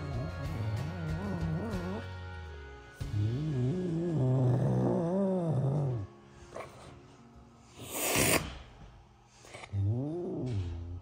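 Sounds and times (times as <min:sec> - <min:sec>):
cat growling: 0:00.0 - 0:02.1, 0:03.2 - 0:07.0, 0:09.4 - 0:11.0
cat hissing: 0:07.7 - 0:08.7.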